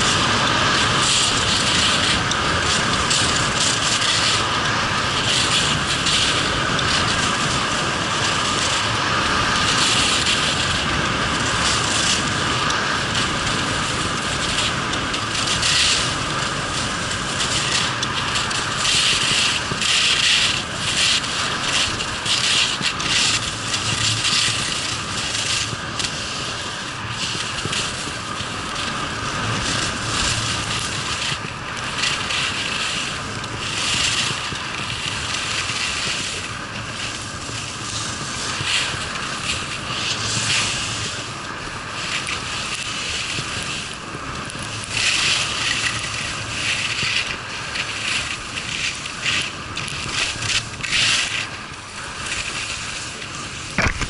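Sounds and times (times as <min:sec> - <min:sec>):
skis scraping over snow: 0:00.0 - 0:54.0.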